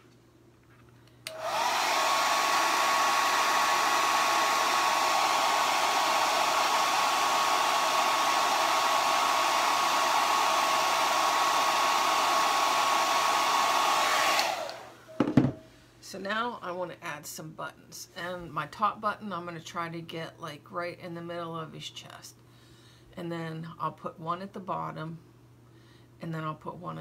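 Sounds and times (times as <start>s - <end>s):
hair dryer blowing: 1.2s - 15.5s.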